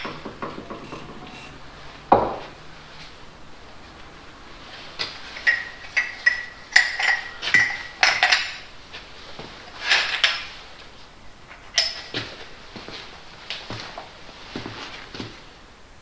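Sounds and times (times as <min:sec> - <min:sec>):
metal tools clinking on workbench: 0:00.0 - 0:01.6, 0:05.4 - 0:08.7, 0:11.5 - 0:12.2.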